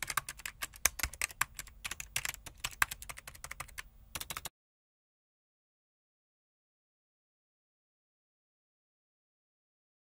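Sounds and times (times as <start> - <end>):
keyboard typing clicks: 0.0 - 4.5.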